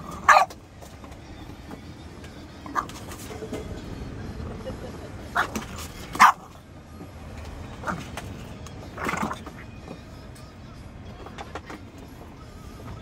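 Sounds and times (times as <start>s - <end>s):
dog barking: 0.1s - 0.6s, 2.7s - 3.0s, 5.3s - 6.5s.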